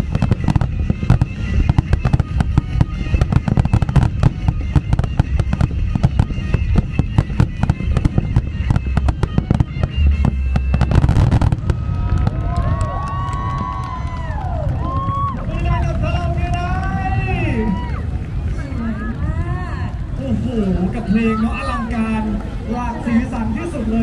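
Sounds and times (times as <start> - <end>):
fireworks shells bursting: 0.0 - 13.8
deep fireworks booms: 0.0 - 23.1.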